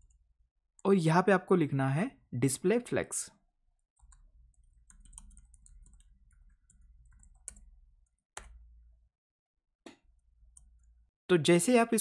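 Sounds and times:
typing on computer keyboard: 4.0s - 7.7s.

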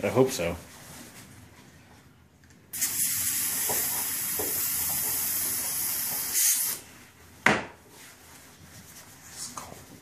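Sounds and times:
gas hissing from can: 2.7s - 6.8s.

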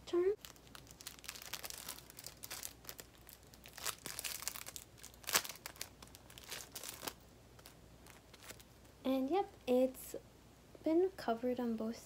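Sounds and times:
small wrapper crinkling: 0.4s - 9.0s.

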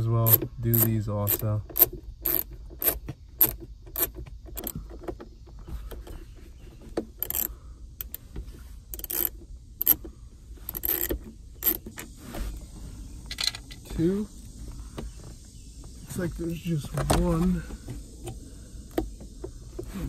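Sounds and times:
hand ratchet clicking: 0.2s - 4.8s, 7.2s - 8.2s, 8.9s - 10.0s, 10.7s - 11.8s.

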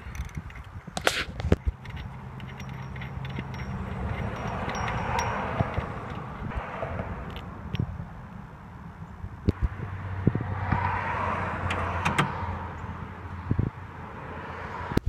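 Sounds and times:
vehicle passing by: 1.5s - 15.0s.

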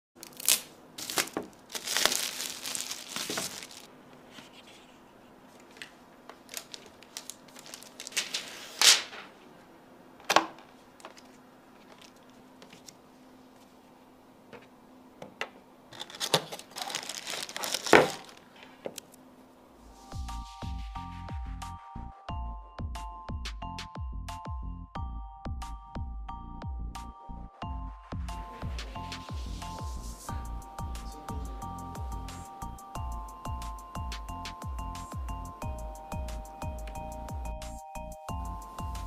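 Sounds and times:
paper and packaging crinkling: 0.2s - 4.8s, 5.6s - 9.4s, 11.0s - 13.0s, 15.9s - 19.1s
electronic music: 19.9s - 39.0s.

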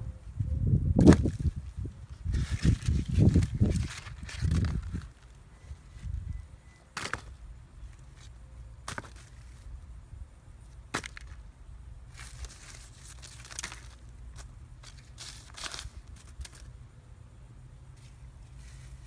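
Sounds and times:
newspaper rustling: 2.4s - 5.3s, 12.1s - 16.7s.

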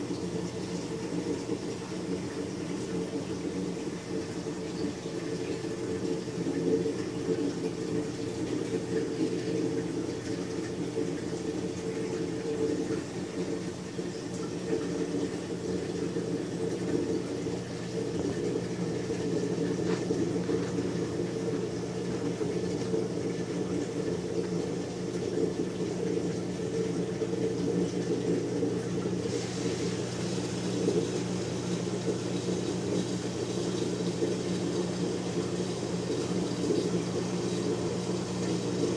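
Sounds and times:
aquarium pumps humming: 0.0s - 38.9s
water circulating: 0.0s - 38.9s.

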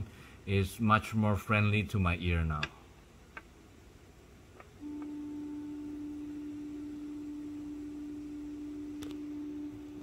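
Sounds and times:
stepper motor humming: 4.8s - 10.0s.

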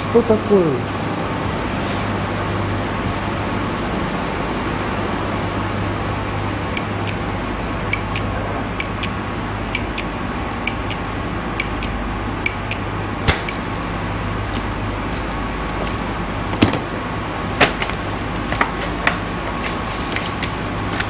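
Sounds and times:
steady low hum: 5.9s - 14.3s
lighter lid metallic clicks: 9.8s - 10.1s, 10.7s - 11.0s, 11.6s - 12.8s.

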